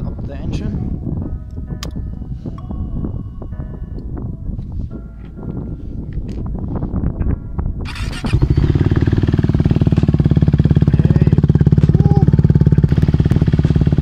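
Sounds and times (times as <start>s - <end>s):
motorcycle engine idling loudly: 7.8s - 14.0s.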